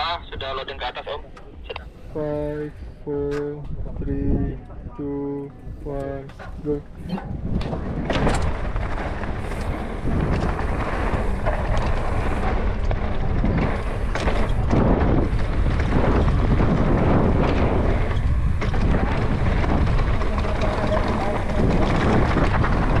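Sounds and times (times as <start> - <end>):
wind buffeting microphone: 0.0 - 23.0
bike knocking and rattling: 6.0 - 23.0
tyres rumbling on dirt: 6.0 - 23.0.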